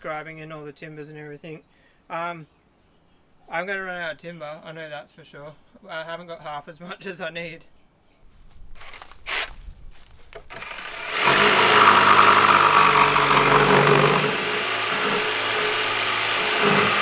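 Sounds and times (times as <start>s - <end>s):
jigsaw cutting wood: 8.8s - 9.5s, 10.4s - 17.0s.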